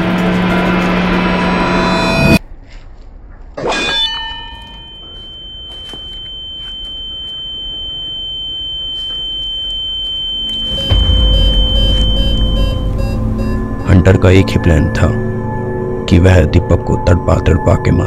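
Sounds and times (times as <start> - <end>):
high-pitched ringing tone: 0.5 - 2.4, 3.9 - 16.1
music with deep bass: 10.7 - 15.9
sudden sharp hit: 10.7 - 16.0.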